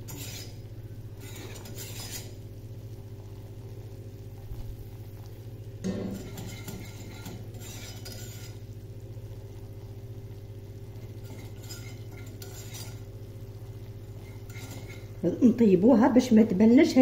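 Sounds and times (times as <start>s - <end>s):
steady low hum: 0.0s - 17.0s
whisk clinking against saucepan: 5.9s - 8.6s, 11.2s - 13.1s, 14.2s - 15.1s.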